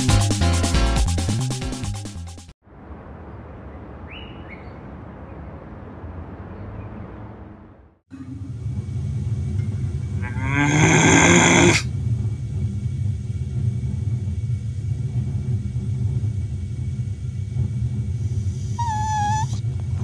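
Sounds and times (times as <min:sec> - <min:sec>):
steady low hum: 0:08.1 - 0:20.0
drawn-out vocal groan: 0:10.1 - 0:11.9.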